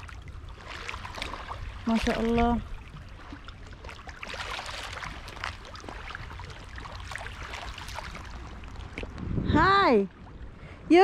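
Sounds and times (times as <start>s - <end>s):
ripples lapping at shore: 0.0s - 9.4s
low steady rumble: 0.0s - 11.0s.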